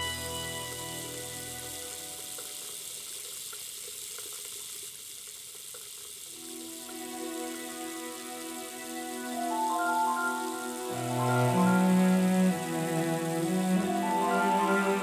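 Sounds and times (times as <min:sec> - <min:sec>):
water running from a tap: 0:00.1 - 0:15.0
soft background music: 0:06.4 - 0:15.0.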